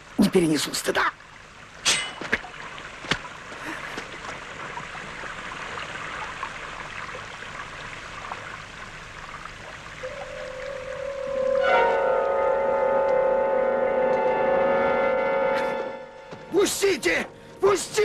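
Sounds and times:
held musical note: 0:10.0 - 0:17.8.

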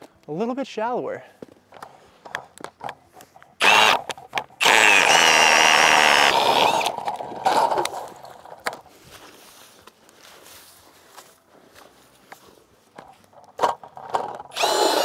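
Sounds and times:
cordless drill drilling ice: 0:03.6 - 0:08.2, 0:14.4 - 0:15.0.

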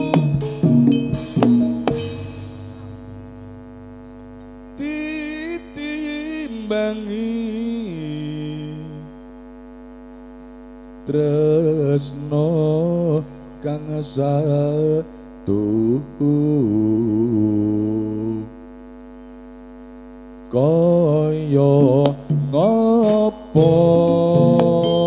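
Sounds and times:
electrical hum: 0:00.0 - 0:25.0
melismatic singing over loudspeaker: 0:20.6 - 0:25.0.

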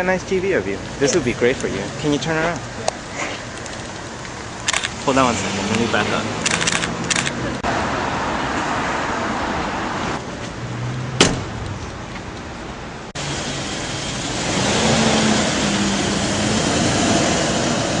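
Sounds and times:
street noise: 0:00.0 - 0:18.0
car door shutting: 0:11.2 - 0:11.6.

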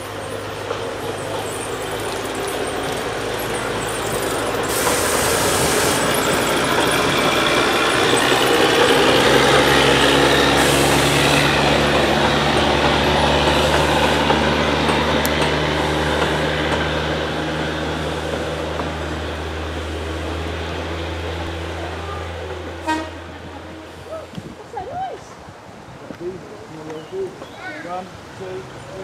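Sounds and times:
train coaches rolling: 0:00.0 - 0:25.5
diesel locomotive passing: 0:00.0 - 0:25.9.

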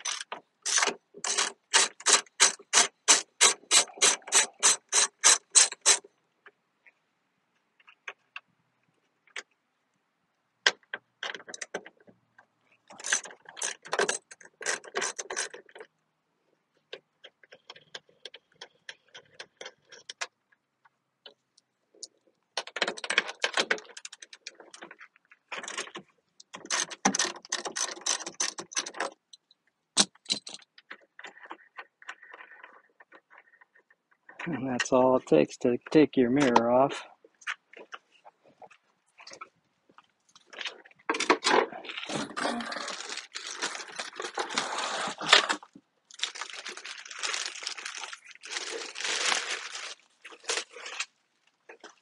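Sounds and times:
ratchet wrench clicking: 0:00.0 - 0:06.0.

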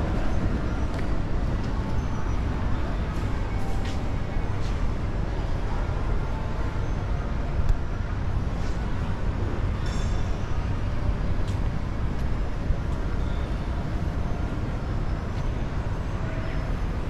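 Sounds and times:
low rumble of mall background noise: 0:00.0 - 0:17.0.

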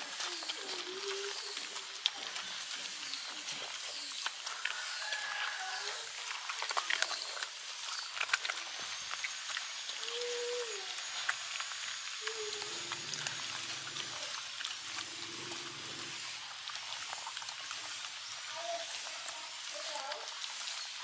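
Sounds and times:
dogs chewing and licking: 0:00.0 - 0:21.0
dog growling low: 0:12.2 - 0:16.4.

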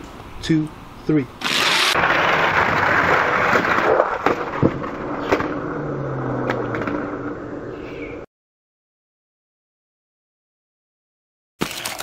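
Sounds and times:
toy cars rolling down plastic track: 0:01.4 - 0:05.6.

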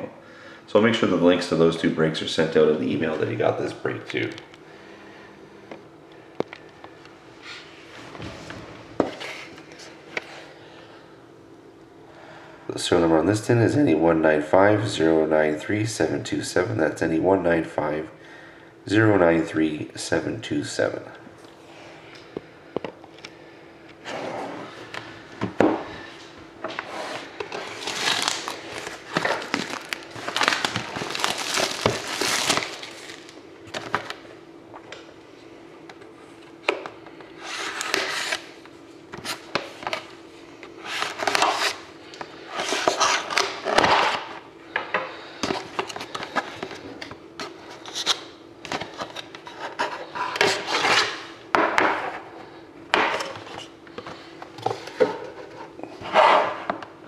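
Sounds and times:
shrink wrap crinkling: 0:27.5 - 0:34.2.

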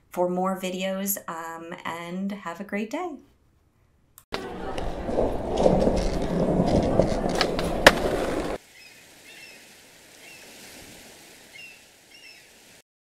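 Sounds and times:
skateboard clacks: 0:04.4 - 0:08.6
skateboard wheels rolling on hard floor: 0:04.4 - 0:08.6.

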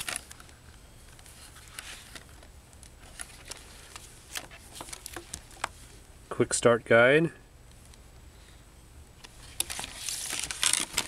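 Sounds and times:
low steady hum: 0:00.0 - 0:11.0
paper rustling: 0:01.1 - 0:02.4, 0:03.0 - 0:05.8, 0:09.4 - 0:11.0.

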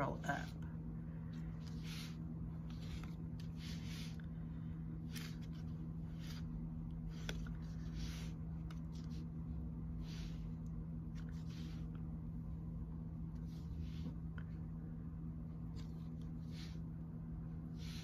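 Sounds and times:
steady low hum: 0:00.0 - 0:18.0
clay squishing and rustling: 0:01.2 - 0:12.2.

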